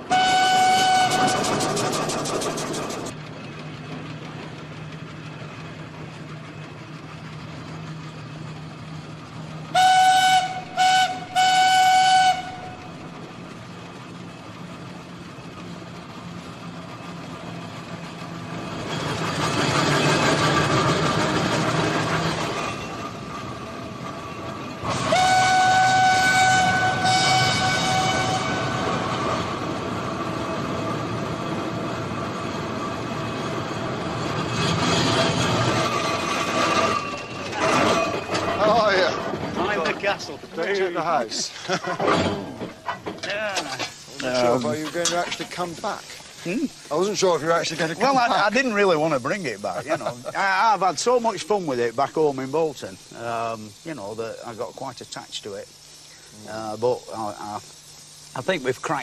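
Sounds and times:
steam whistle blasts: 0:00.0 - 0:01.7, 0:09.7 - 0:12.7, 0:24.9 - 0:28.9
steam engine running: 0:00.0 - 0:59.0.

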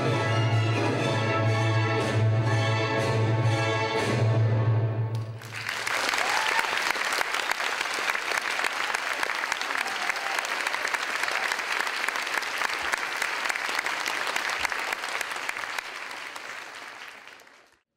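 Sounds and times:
audience applauding: 0:05.2 - 0:17.8.

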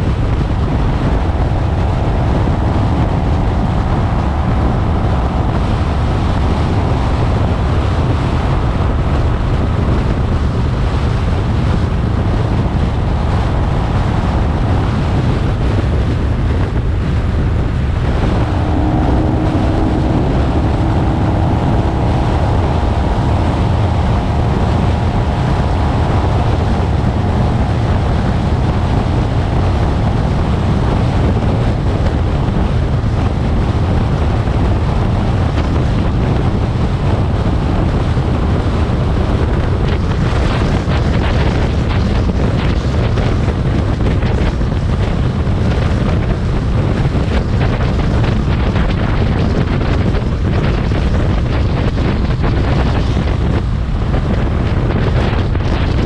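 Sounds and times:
faint steady whine: 0:00.0 - 0:38.0
motorcycle engine drone: 0:00.0 - 0:56.0
wind rush: 0:00.0 - 0:56.0.

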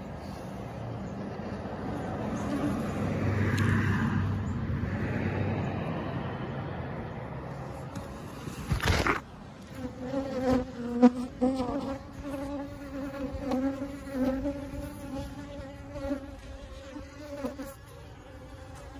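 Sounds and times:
honeybees buzzing: 0:07.1 - 0:18.9.

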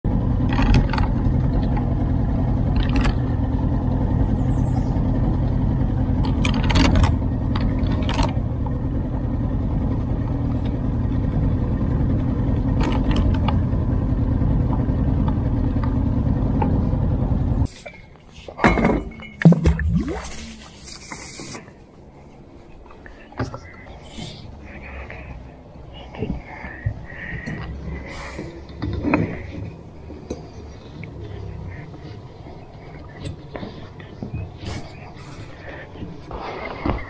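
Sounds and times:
boat motor running: 0:00.0 - 0:17.8, 0:18.5 - 0:37.0
sharp clicks and knocks: 0:00.4 - 0:01.9, 0:02.7 - 0:03.3, 0:06.2 - 0:08.8.

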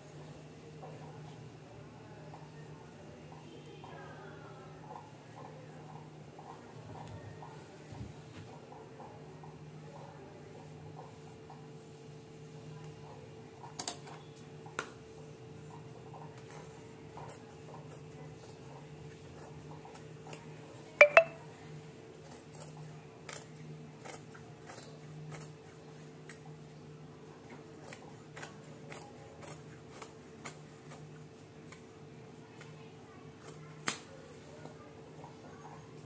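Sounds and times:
scissors snipping fabric: 0:27.6 - 0:31.1.

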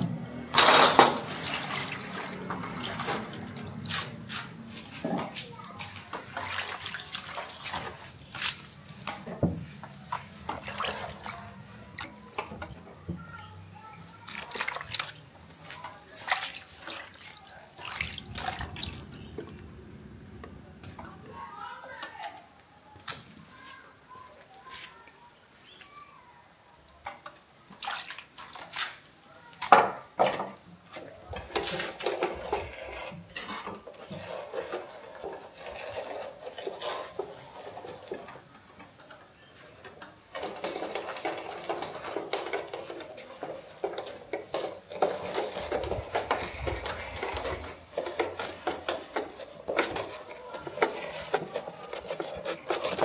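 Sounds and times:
metal utensils scraping and clattering: 0:00.5 - 0:12.9, 0:29.9 - 0:53.0
pots and pans clinking: 0:00.6 - 0:03.4, 0:31.4 - 0:38.3.

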